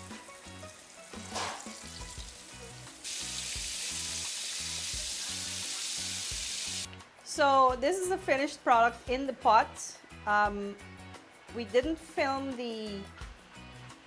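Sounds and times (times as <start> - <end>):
fish sizzling in hot oil: 0.0 - 6.9
faint background music with beat: 0.0 - 14.0.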